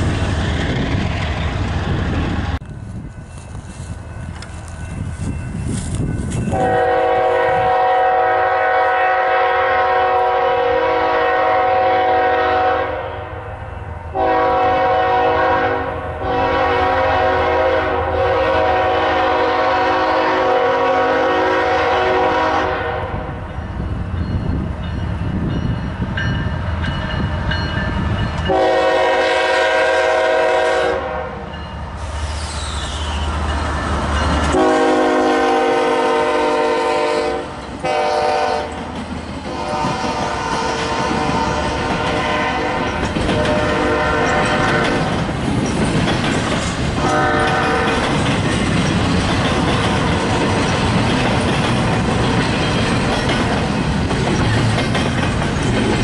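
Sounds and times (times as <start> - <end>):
train wheels rumbling on rails: 0.0 - 56.0
locomotive air horn blasts: 6.5 - 13.4, 14.1 - 23.3, 28.4 - 31.6, 34.5 - 38.7, 39.5 - 45.0, 47.0 - 48.0.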